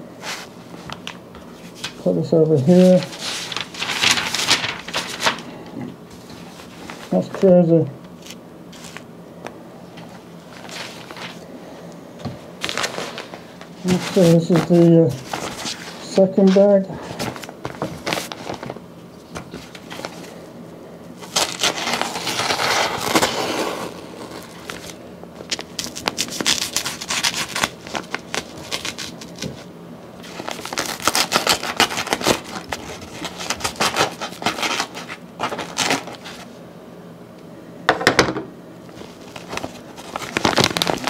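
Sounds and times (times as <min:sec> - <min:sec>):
paper bag tearing and crinkling: 0:01.6 - 0:05.6, 0:10.5 - 0:11.5, 0:12.6 - 0:18.8, 0:21.2 - 0:36.5, 0:39.0 - 0:41.0.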